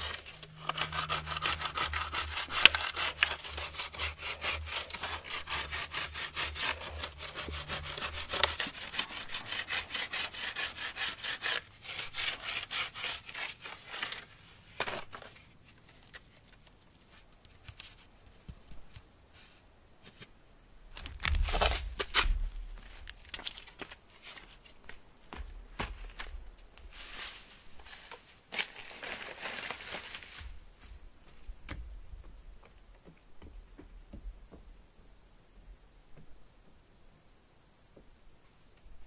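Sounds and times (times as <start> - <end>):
wooden stick scraping on stone: 0.0 - 14.3
rustling crunch: 0.0 - 20.3, 20.9 - 31.6.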